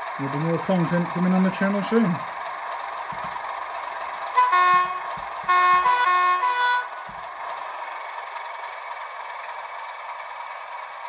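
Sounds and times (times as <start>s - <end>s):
diesel engine idling: 0.0s - 11.0s
two-tone locomotive horn: 4.4s - 6.9s.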